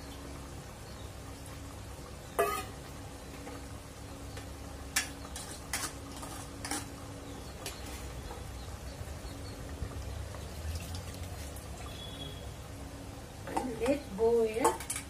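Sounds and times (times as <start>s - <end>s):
steel bowls clinking: 2.4s - 2.8s.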